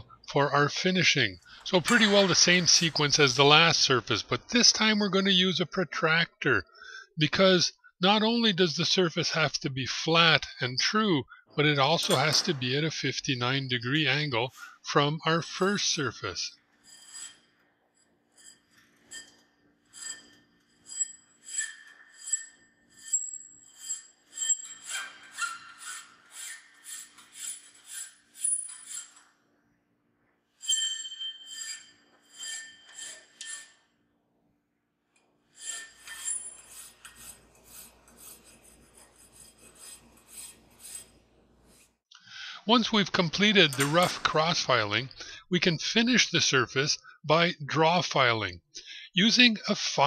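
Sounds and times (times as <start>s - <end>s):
hand file rasping on steel: 16.8s - 17.5s, 18.3s - 29.3s, 30.6s - 33.8s, 35.5s - 42.0s.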